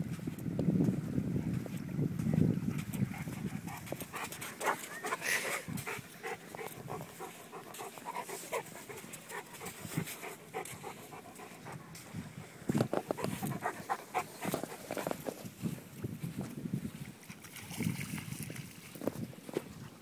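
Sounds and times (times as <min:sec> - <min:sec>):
wind buffeting microphone: 0:00.0 - 0:20.0
dog panting: 0:02.7 - 0:15.4.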